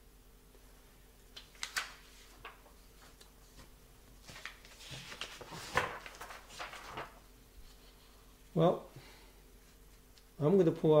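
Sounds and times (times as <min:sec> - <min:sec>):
paper rustling and sliding on table: 0:01.6 - 0:08.2.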